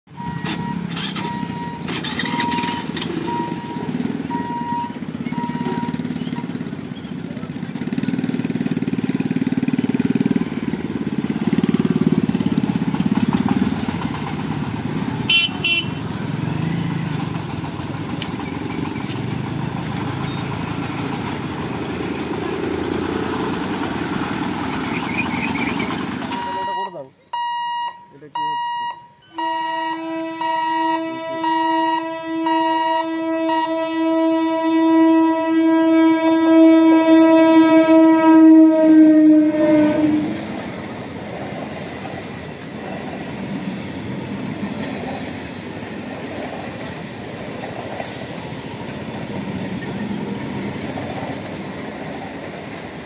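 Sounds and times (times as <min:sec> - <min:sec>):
repeated electronic beep: 0:00.2 - 0:06.5, 0:26.3 - 0:33.0
small engines pulling away: 0:00.2 - 0:15.3, 0:16.0 - 0:26.6
horn double toot: 0:15.3 - 0:16.0, 0:29.3 - 0:40.4.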